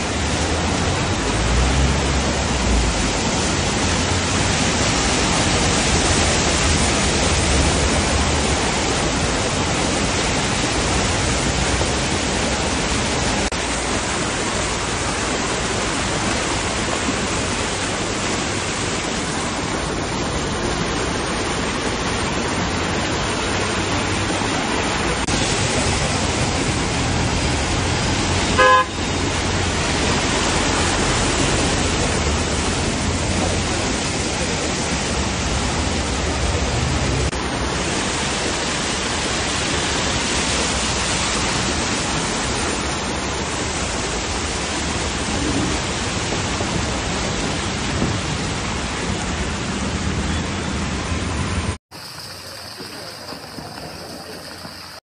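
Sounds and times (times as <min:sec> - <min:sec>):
heavy rain and flood water: 0:00.0 - 0:55.0
low vehicle rumble: 0:00.0 - 0:55.0
vehicle horn toot: 0:28.5 - 0:29.2.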